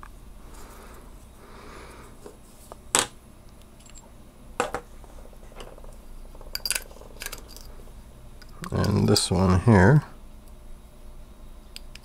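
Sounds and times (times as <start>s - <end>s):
small metal parts clinking: 3.8s - 4.8s, 5.5s - 7.7s.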